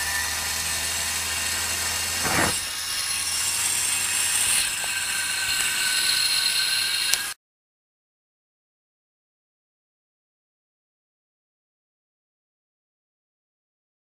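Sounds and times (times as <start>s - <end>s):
steam hissing: 1.6s - 7.4s
short puff: 2.2s - 2.7s.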